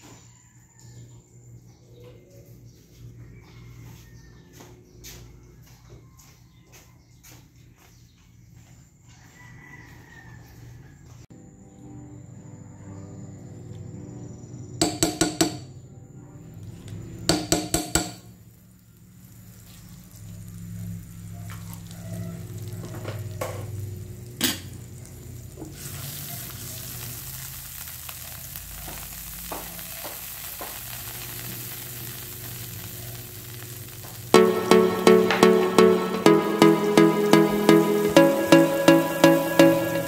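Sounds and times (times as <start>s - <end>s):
butter sizzling in a frying pan: 18.3s - 34.4s.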